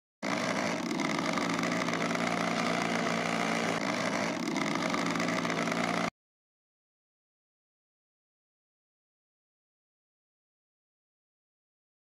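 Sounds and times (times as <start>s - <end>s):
chainsaw engine idling: 0.2s - 6.1s.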